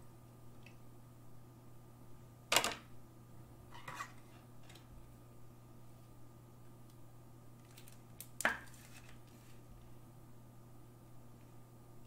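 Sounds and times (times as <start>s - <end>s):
low steady hum: 0.0s - 12.0s
soft card rustles: 7.6s - 9.9s.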